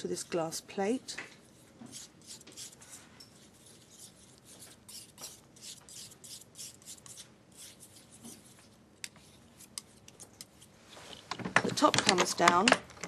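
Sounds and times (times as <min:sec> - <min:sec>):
tool scraping on glass: 0:01.4 - 0:08.6.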